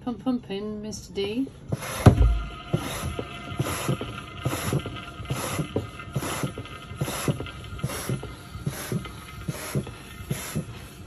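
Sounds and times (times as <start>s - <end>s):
hand pump knocking and hissing: 1.7s - 11.0s.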